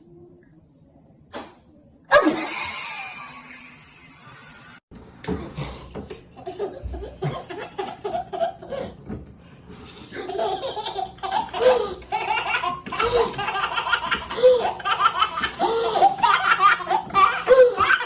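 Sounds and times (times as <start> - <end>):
baby giggling: 6.4 - 9.0, 10.2 - 18.0.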